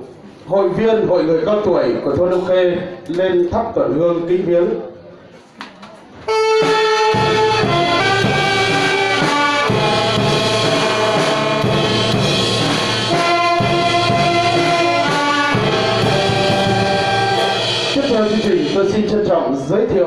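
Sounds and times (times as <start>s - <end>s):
brass band playing long notes: 6.3s - 18.9s.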